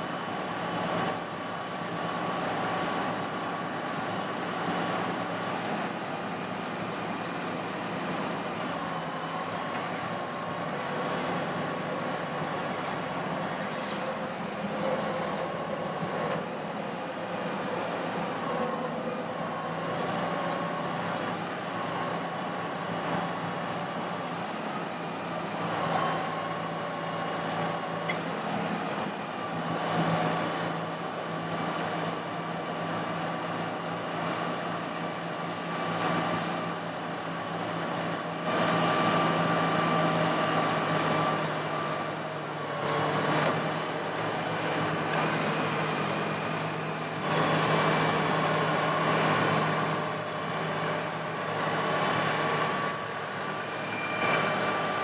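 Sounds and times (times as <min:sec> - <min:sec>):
truck engine hum: 0:00.0 - 0:55.0
hydraulic whine: 0:38.4 - 0:46.6.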